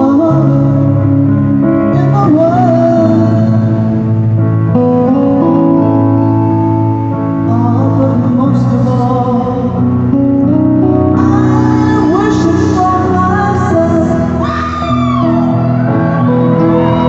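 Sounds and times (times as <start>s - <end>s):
electric guitar: 0.0s - 17.0s
woman singing: 11.2s - 15.6s.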